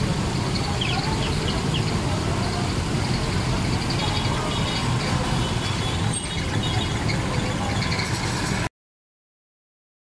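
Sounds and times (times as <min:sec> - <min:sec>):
hiss of rain and water: 0:00.0 - 0:06.2
vehicle engines running: 0:00.0 - 0:08.7.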